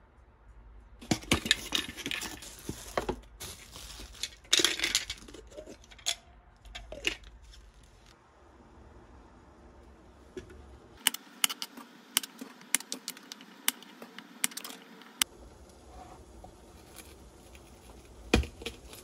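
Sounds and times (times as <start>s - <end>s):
rustling: 1.0s - 8.2s, 15.2s - 19.0s.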